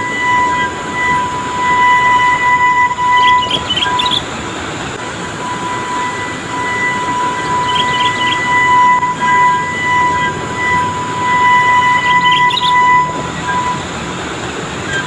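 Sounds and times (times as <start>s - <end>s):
heavy truck engines in low gear: 0.0s - 15.0s
steady high whine: 0.0s - 15.0s
short chirps: 6.8s - 8.7s, 11.7s - 13.1s.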